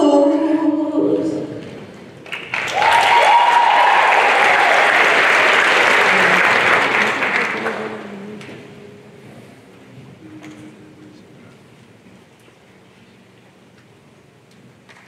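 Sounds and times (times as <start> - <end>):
audience applauding and cheering: 2.2 - 8.5
long high cheer: 2.5 - 7.9.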